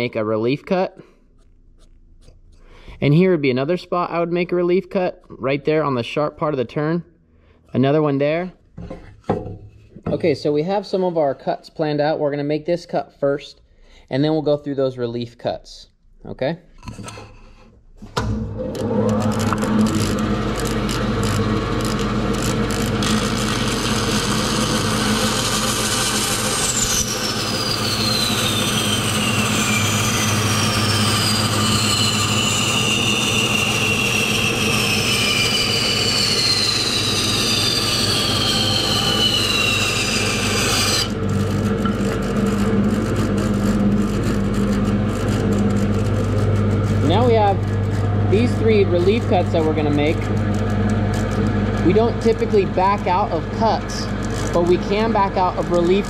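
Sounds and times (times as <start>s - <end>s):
saw cutting wood: 16.9s - 56.0s
bandsaw humming: 18.2s - 56.0s.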